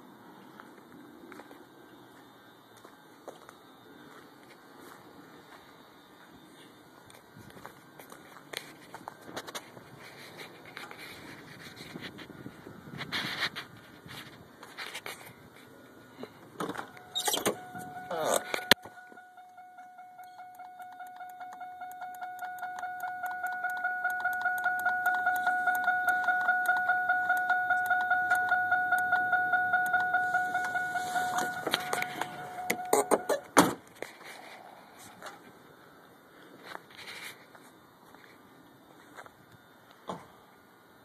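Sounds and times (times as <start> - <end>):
pulsing electronic beeper: 17.0 - 33.5.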